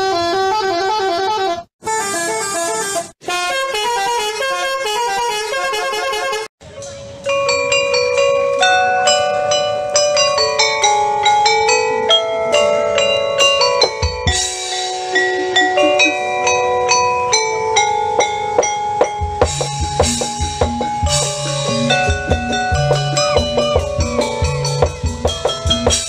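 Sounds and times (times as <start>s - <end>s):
low beat and bass: 6.6s - 26.0s
dance music with ringing melody: 6.9s - 26.0s.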